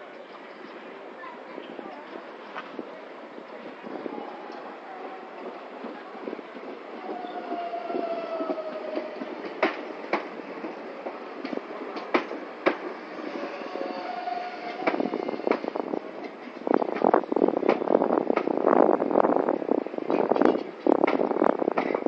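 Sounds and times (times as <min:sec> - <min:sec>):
train rattling: 0:00.0 - 0:22.0
train rolling noise: 0:00.0 - 0:22.0
train wheels clicking over rail joints: 0:07.8 - 0:18.7, 0:20.0 - 0:22.0.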